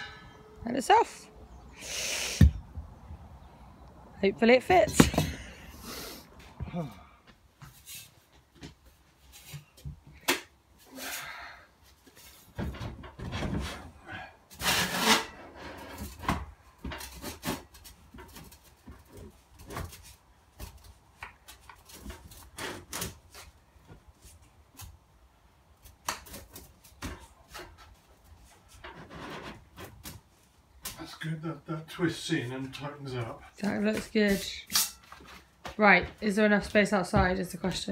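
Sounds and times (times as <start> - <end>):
pipe parts scraping: 0.0 - 1.3, 14.5 - 16.2, 27.2 - 30.1, 33.6 - 35.5.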